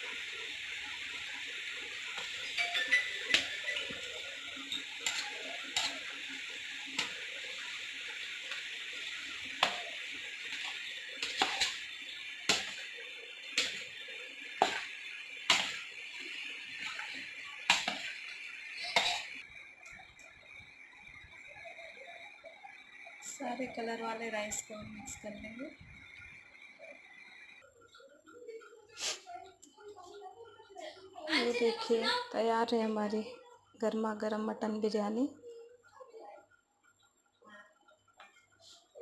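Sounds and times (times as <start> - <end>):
utensil scraping a steel pot: 4.7 - 6.2, 10.5 - 11.9.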